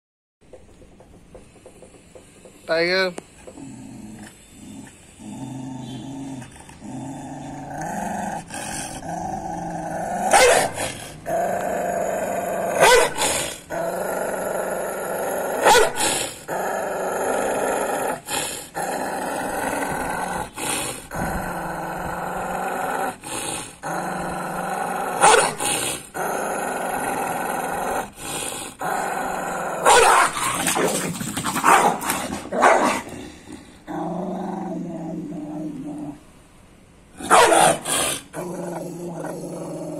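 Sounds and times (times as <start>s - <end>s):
dog growling: 3.3s - 36.3s, 37.2s - 39.9s
dog barking: 10.3s - 10.8s, 12.8s - 13.2s, 15.6s - 16.0s, 25.2s - 25.6s, 29.8s - 30.4s, 31.6s - 32.0s, 32.6s - 33.0s, 37.2s - 37.8s.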